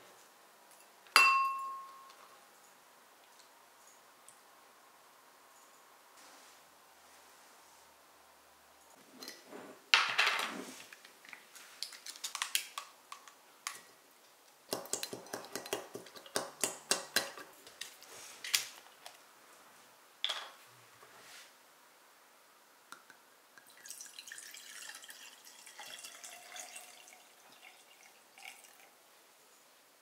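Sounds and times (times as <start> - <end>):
glassware and utensils clinking: 0.8 - 2.2
taps against a glass jar: 1.2 - 2.1.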